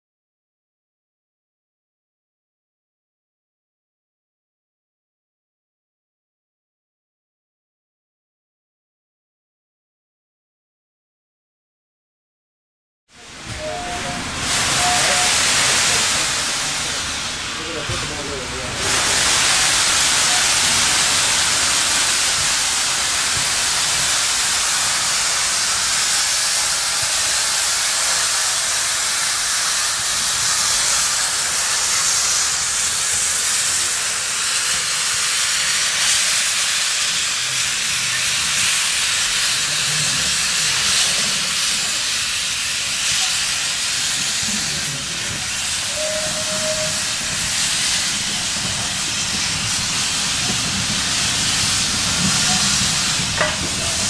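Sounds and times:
steam locomotive hissing steam: 0:13.2 - 0:54.0.

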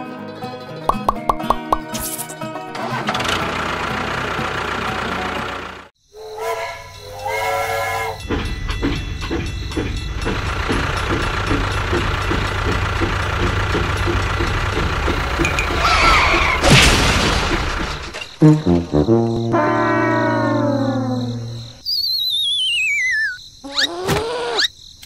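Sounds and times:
toy train chugging on track: 0:02.9 - 0:16.5
toy train whistle toots: 0:06.2 - 0:08.2.

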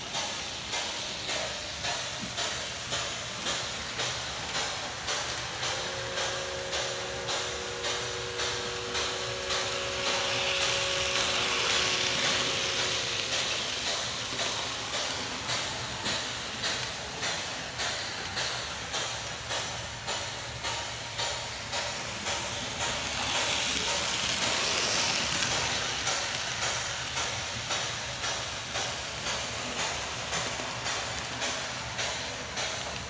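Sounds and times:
steam hiss: 0:00.0 - 0:33.0
steam locomotive chuffing: 0:00.0 - 0:33.0
steam whistle: 0:05.7 - 0:13.1.

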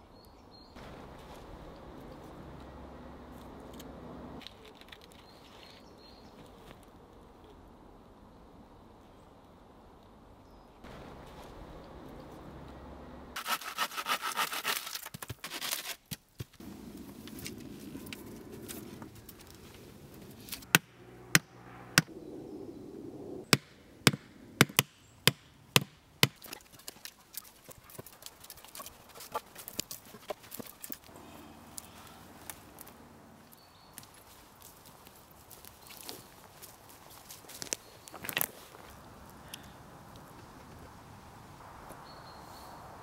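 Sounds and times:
scraping strokes on wood: 0:13.4 - 0:16.0.

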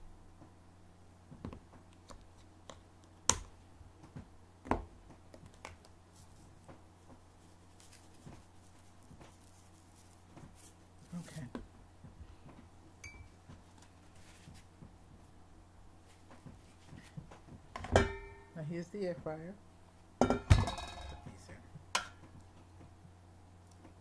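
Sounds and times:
low steady hum: 0:00.0 - 0:24.0
hands handling things: 0:05.1 - 0:11.7, 0:12.4 - 0:15.0, 0:16.0 - 0:17.6.

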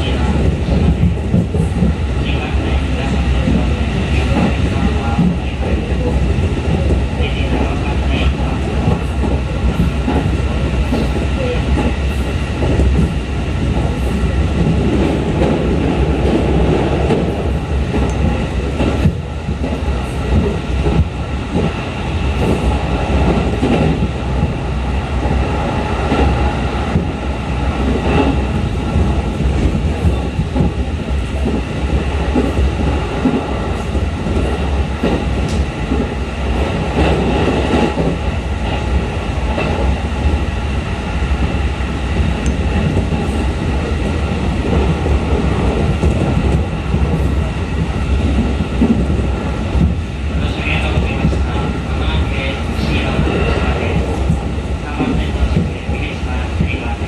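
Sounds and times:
train wheels and motors rumbling: 0:00.0 - 0:57.0.

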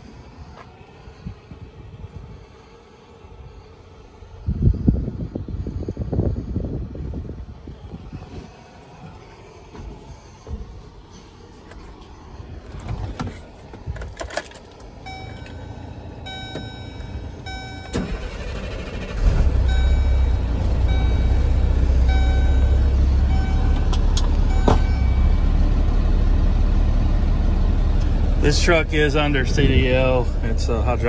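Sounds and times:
truck engine starting and idling: 0:01.0 - 0:31.0
warning chime: 0:15.0 - 0:25.5.

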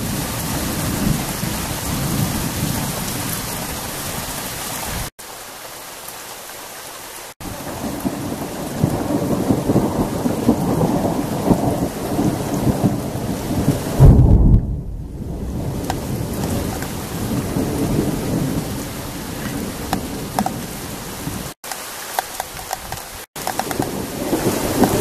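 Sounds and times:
heavy rain: 0:00.0 - 0:25.0
rolling thunder: 0:07.4 - 0:21.6, 0:23.4 - 0:25.0
loud thunder clap: 0:07.8 - 0:18.8, 0:23.6 - 0:25.0.

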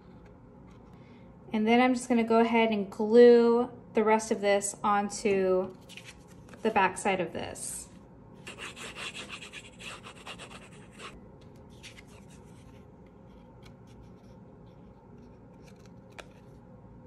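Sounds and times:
cardstock rustling and rubbing: 0:08.5 - 0:16.6.

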